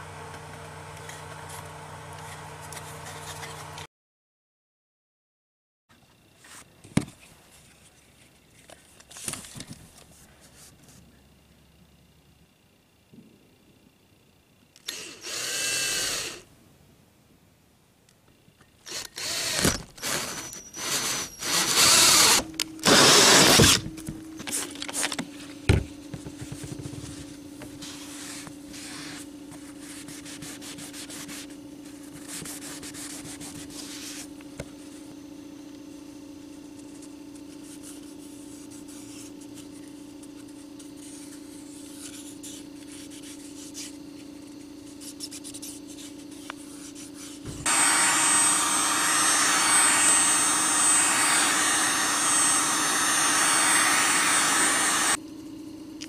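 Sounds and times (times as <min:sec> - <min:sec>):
power drill with hole saw cutting: 0:00.0 - 0:03.9, 0:14.8 - 0:16.4, 0:18.8 - 0:23.8, 0:47.6 - 0:55.2
steady low hum: 0:06.1 - 0:56.0.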